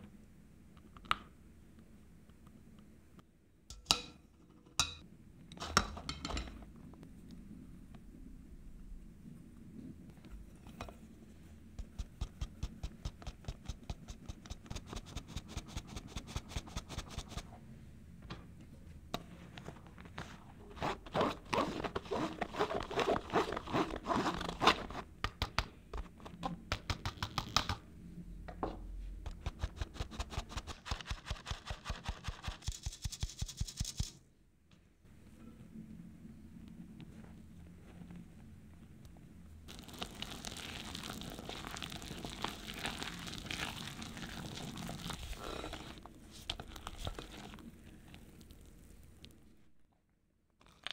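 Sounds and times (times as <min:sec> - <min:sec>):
whisk scraping metal sieve: 0:20.8 - 0:25.0.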